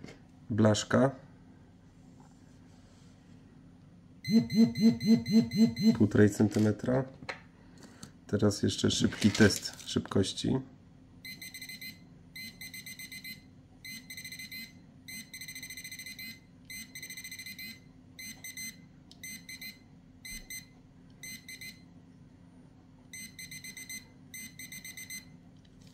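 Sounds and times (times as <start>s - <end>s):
metal detector beeping: 4.2s - 6.1s, 23.2s - 25.2s.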